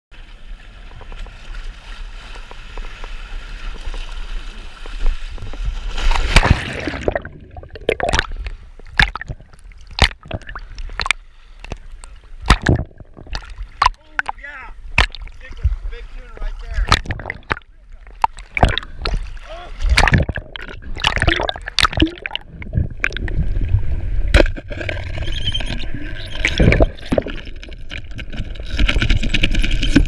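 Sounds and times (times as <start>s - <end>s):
water splashing and sloshing: 0.1s - 30.0s
loud splash into water: 5.9s - 8.3s, 12.4s - 14.3s, 18.2s - 22.4s
wind and water rushing: 11.8s - 30.0s.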